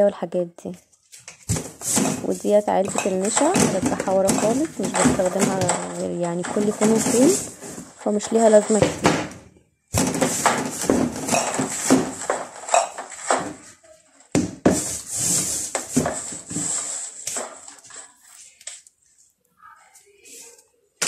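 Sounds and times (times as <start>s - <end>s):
plastic boxes knocking and clattering: 1.1s - 17.9s.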